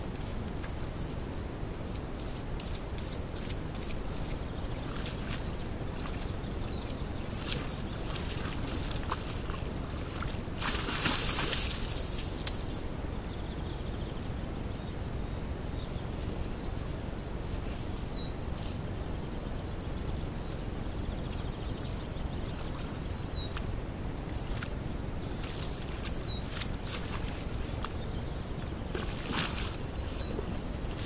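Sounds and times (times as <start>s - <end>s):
splashing in muddy water: 2.2s - 12.6s, 21.2s - 31.0s.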